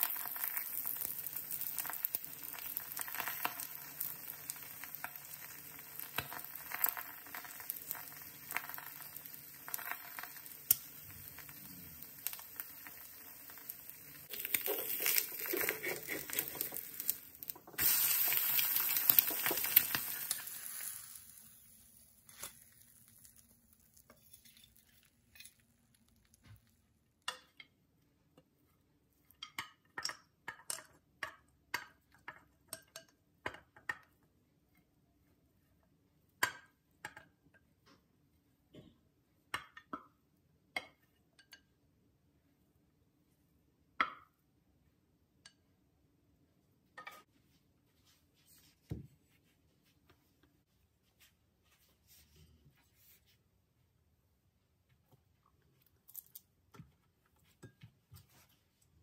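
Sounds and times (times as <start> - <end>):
egg sizzling in a pan: 0.0 - 25.0.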